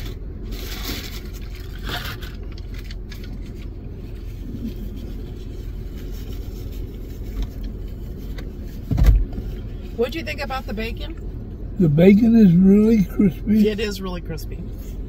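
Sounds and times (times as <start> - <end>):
car idling inside cabin: 0.0 - 15.0
faint rustle: 0.4 - 10.1.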